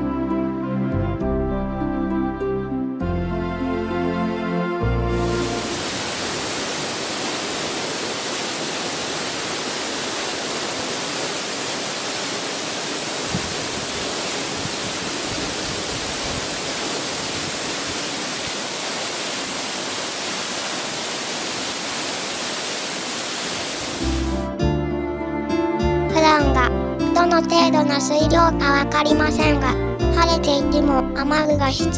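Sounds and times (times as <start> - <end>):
waterfall rushing: 5.1 - 24.5.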